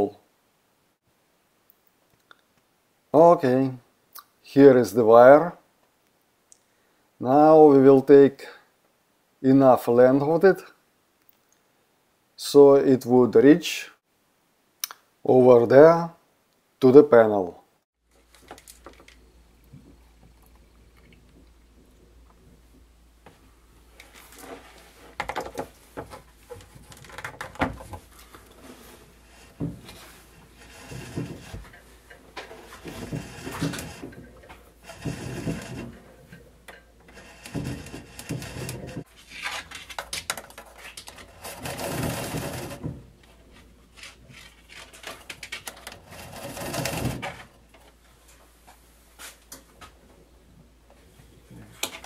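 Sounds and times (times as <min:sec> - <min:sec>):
wire rubbing and scraping: 0:24.0 - 0:48.0
handling clicks and knocks: 0:25.1 - 0:28.6, 0:38.6 - 0:41.3.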